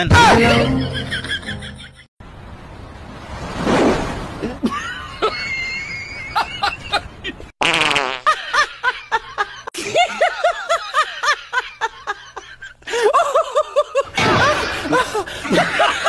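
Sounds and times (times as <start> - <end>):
loud fart sound: 7.6 - 8.3.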